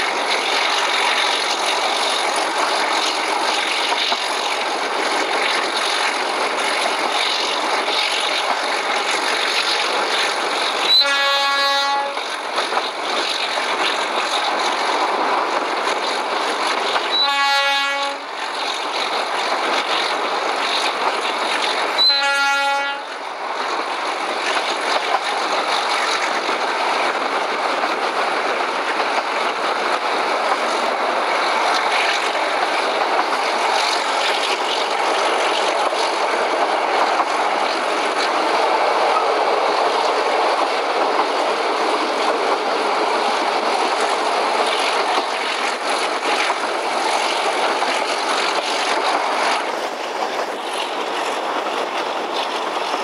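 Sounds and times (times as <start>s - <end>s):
train running: 0.0s - 53.0s
locomotive horn blasts: 10.9s - 12.2s, 17.1s - 18.3s, 22.0s - 23.1s.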